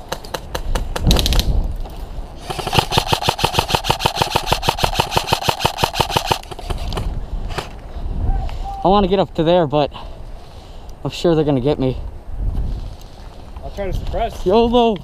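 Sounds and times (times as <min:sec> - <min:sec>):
airsoft rifle full-auto firing: 0:02.4 - 0:06.9.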